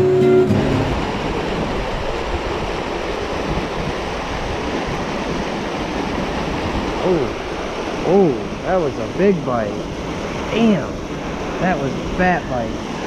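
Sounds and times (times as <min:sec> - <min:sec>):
acoustic guitar strumming: 0:00.0 - 0:01.6
river rushing over rocks: 0:00.0 - 0:13.0.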